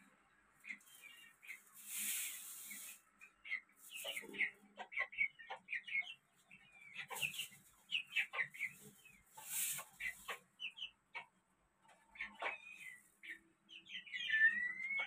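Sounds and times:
chickens clucking and chirping: 0.0s - 15.0s
brief hissing bursts: 1.8s - 3.0s.

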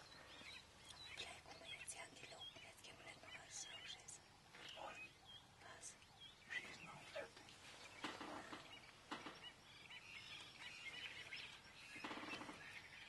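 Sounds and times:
faint bird chirps: 0.0s - 13.0s.

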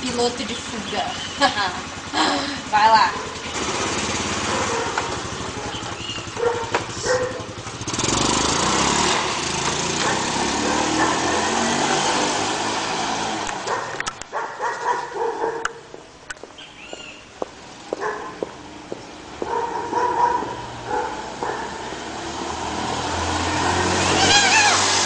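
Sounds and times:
scooter engine revving: 0.0s - 25.0s
dog barking: 4.5s - 7.6s, 10.0s - 11.5s, 13.7s - 15.9s, 18.0s - 18.5s, 19.4s - 21.9s.

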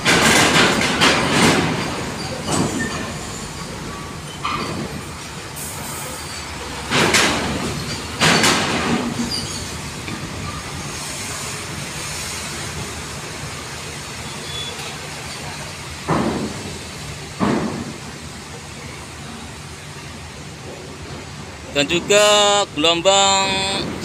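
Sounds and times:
metallic clanks of wheels on ramp: 0.0s - 5.7s, 6.3s - 10.6s
diesel trucks running: 0.0s - 24.0s.

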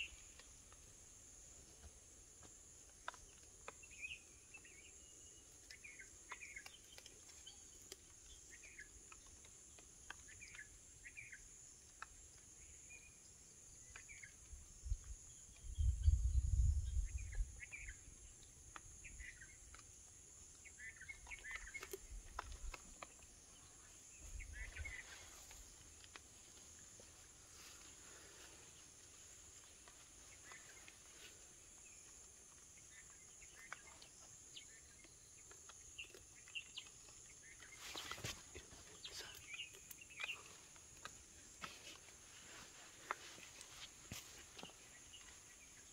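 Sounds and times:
insect drone: 7.4s - 45.9s
bird chirps: 20.6s - 25.6s, 32.8s - 40.7s.

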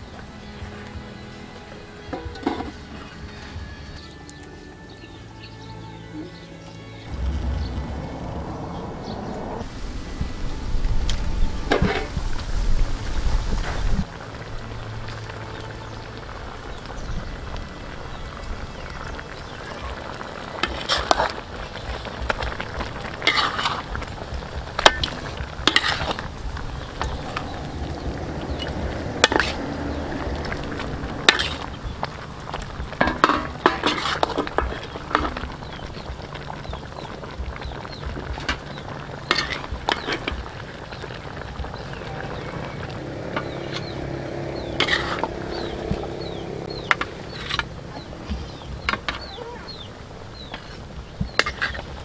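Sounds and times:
meat sizzling: 9.6s - 52.0s
metal spatula scraping wok: 11.6s - 12.2s, 20.6s - 21.4s, 23.2s - 24.0s, 24.8s - 31.8s, 33.0s - 35.5s, 39.2s - 40.4s, 44.6s - 47.8s, 50.4s - 51.9s.

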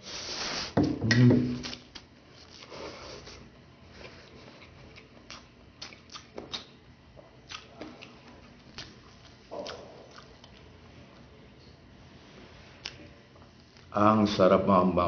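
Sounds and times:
soft chewing with mouth clicks: 1.6s - 11.8s, 12.6s - 13.9s.

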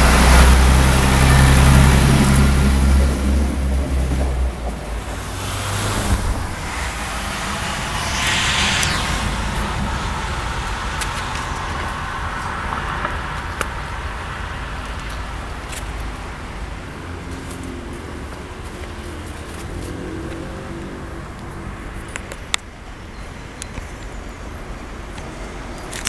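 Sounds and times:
diesel railbus engine rumble: 0.0s - 8.8s.

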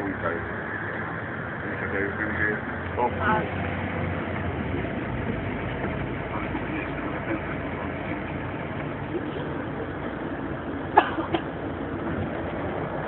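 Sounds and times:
bus engine and road noise: 0.0s - 13.0s.

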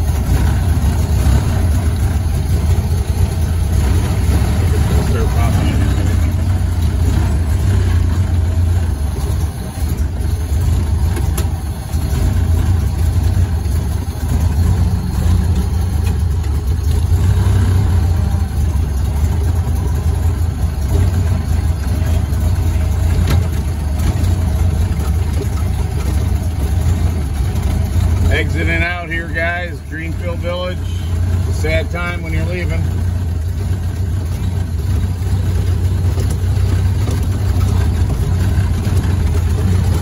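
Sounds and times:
car engine droning: 0.0s - 40.0s.

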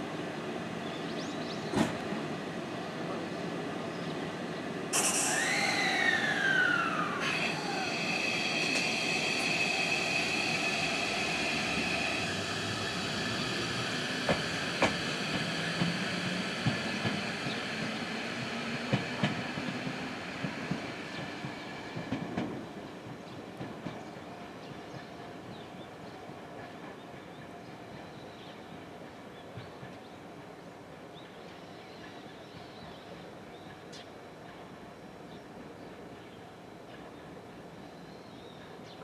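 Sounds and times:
electric train whine: 0.0s - 26.7s
steady high tones: 4.9s - 15.4s.

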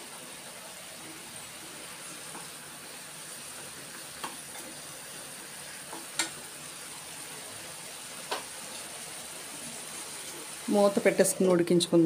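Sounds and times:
gravy simmering hiss: 0.0s - 12.0s.

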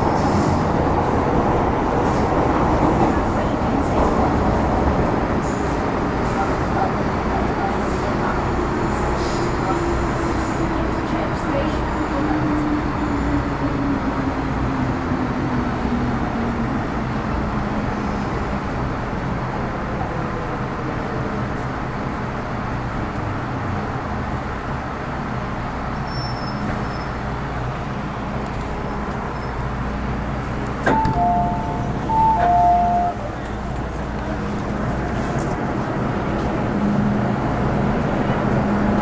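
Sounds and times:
train wheels rumbling on rail: 0.0s - 39.0s
two-note electronic chime: 30.9s - 33.2s.

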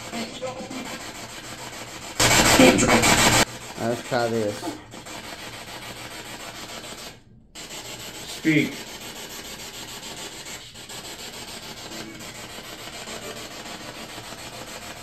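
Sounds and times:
radio static hiss: 2.2s - 4.5s.

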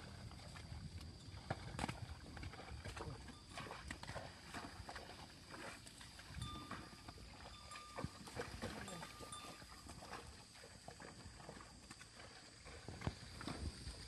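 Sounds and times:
squelching steps in mud: 0.0s - 6.8s
soft thuds in mud: 0.0s - 10.3s, 11.0s - 14.0s.

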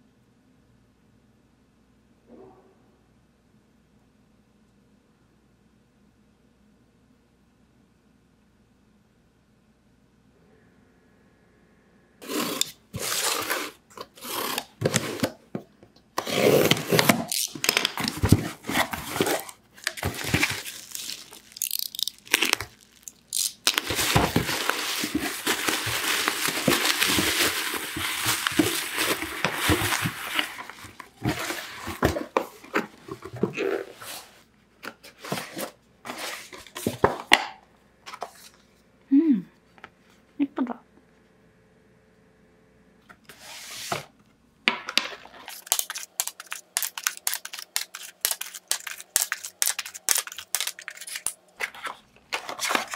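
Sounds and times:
bubble wrap crinkling: 16.6s - 34.4s, 45.2s - 52.9s.

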